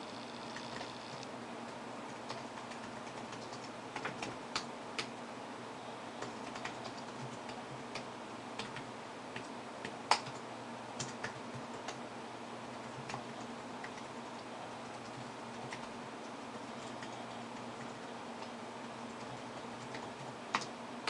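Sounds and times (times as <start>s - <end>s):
faint steady hum: 0.0s - 21.0s
keyboard typing clicks: 0.5s - 1.3s, 2.3s - 5.1s, 6.2s - 10.4s, 11.0s - 12.0s, 14.8s - 15.9s, 19.1s - 20.7s.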